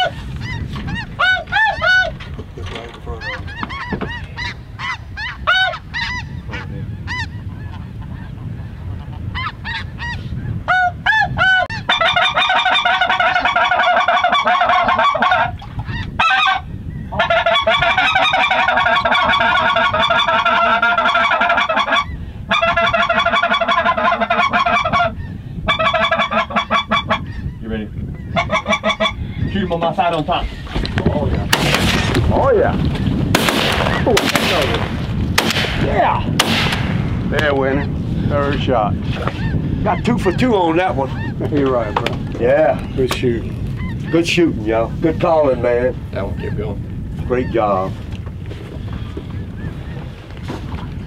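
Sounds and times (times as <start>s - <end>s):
geese honking: 0.0s - 2.2s, 3.0s - 30.7s.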